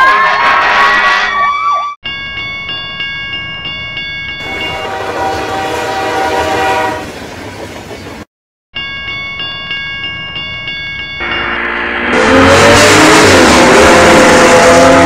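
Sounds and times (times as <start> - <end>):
wailing siren: 0.0 - 2.0.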